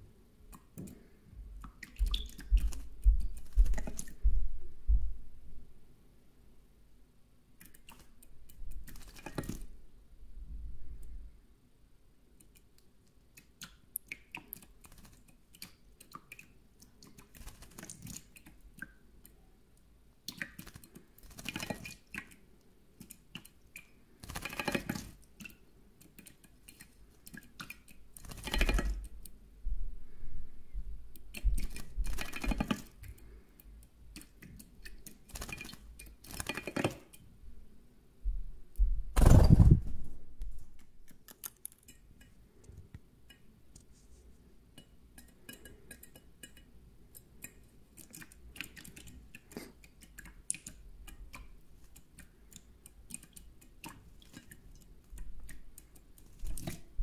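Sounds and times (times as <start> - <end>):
clicks and drips on metal: 1.6 - 4.2, 13.3 - 22.4, 23.0 - 29.3, 41.0 - 43.9, 44.7 - 56.9
bird splashing in water: 35.0 - 37.0.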